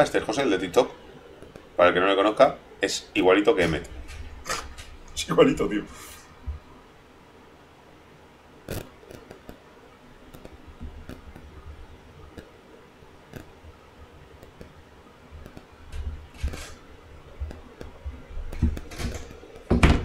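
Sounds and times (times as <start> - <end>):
faint low hum: 0.0 - 20.0
light clicks and taps: 15.4 - 16.8.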